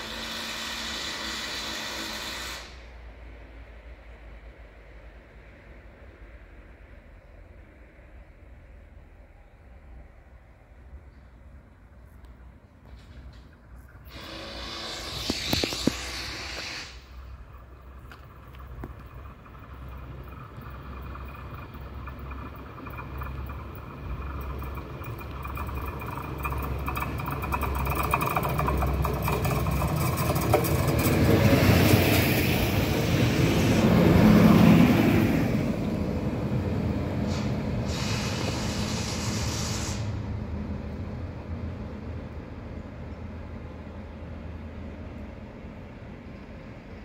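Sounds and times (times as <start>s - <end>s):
train engine hum: 0.0s - 47.0s
wheels on rails: 12.2s - 42.0s.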